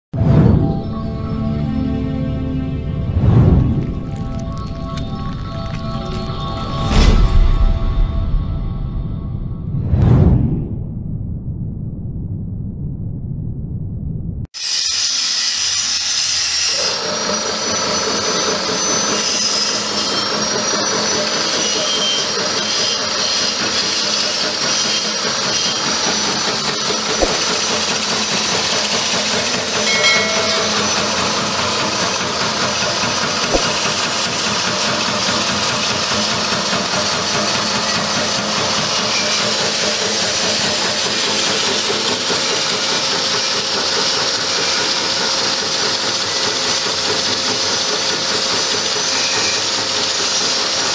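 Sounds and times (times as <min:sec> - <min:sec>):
peanut chopping machine grinding: 0:03.8 - 0:06.8.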